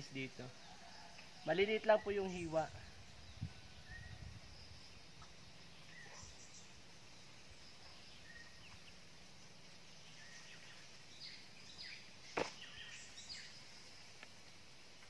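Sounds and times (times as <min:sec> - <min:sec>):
bird chirps: 0:00.0 - 0:14.3.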